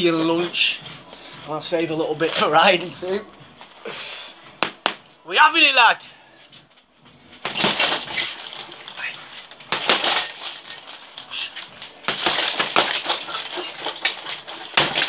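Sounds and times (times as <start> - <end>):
gloves punching heavy bag: 7.4 - 15.0
chains jingling: 7.5 - 15.0.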